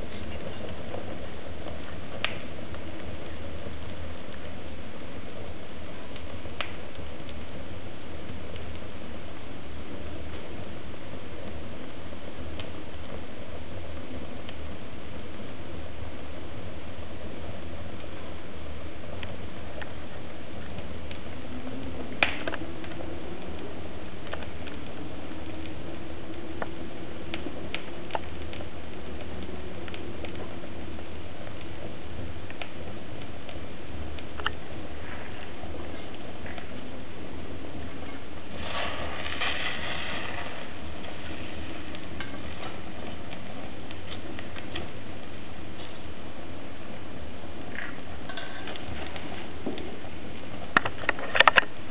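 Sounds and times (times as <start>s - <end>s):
fire crackling: 0.0s - 51.9s
fire popping: 0.0s - 51.9s
low steady fire noise: 0.0s - 51.9s
hissing rush: 38.4s - 43.1s.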